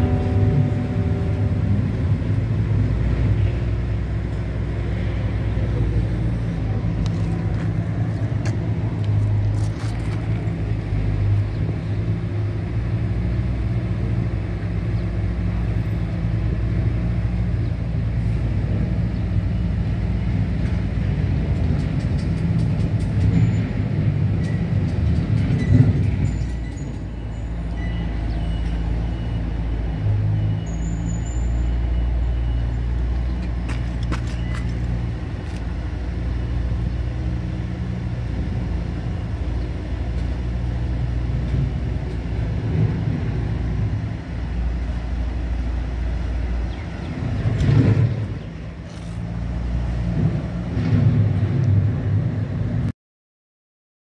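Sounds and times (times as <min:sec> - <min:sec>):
low machine hum: 0:00.0 - 0:03.0.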